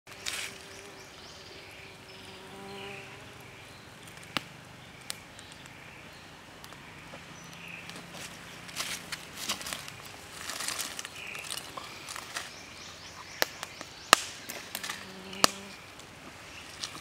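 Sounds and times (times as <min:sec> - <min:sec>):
campfire burning: 0:03.3 - 0:17.0
fire cracks and clicks: 0:04.0 - 0:05.8, 0:06.6 - 0:12.6, 0:13.3 - 0:17.0.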